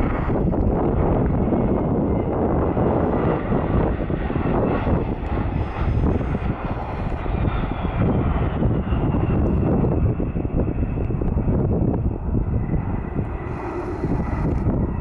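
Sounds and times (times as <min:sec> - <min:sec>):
jet engines whining: 0:00.0 - 0:15.0
wind rumble on microphone: 0:00.0 - 0:15.0.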